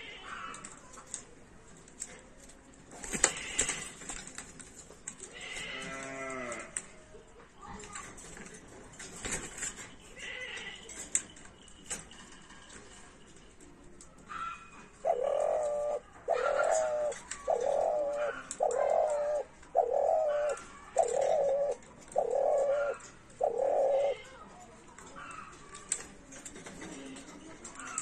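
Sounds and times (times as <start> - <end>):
dove cooing: 14.3 - 28.0.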